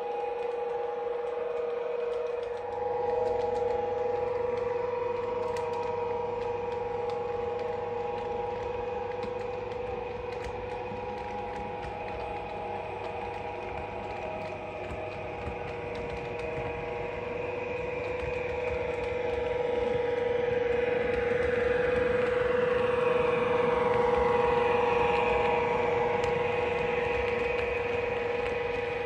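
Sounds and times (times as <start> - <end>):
model train whine: 0.0 - 29.0
wheels clicking on rails: 0.0 - 29.0.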